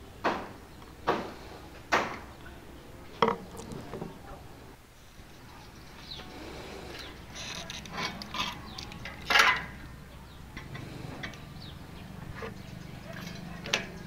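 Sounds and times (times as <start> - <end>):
tools knocking and scraping steel: 3.2 - 4.2, 7.4 - 9.8.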